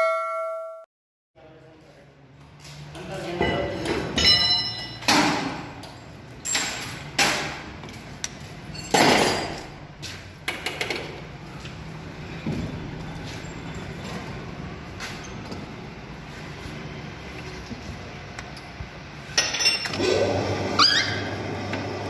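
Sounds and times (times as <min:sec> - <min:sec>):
quiet workshop background: 0:00.0 - 0:22.0
loud metal clanks and knocks: 0:03.4 - 0:07.7, 0:08.7 - 0:09.8.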